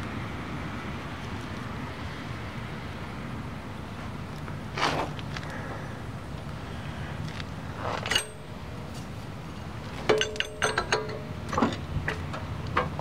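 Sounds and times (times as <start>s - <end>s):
light metallic clinks and rattles: 7.9s - 13.0s.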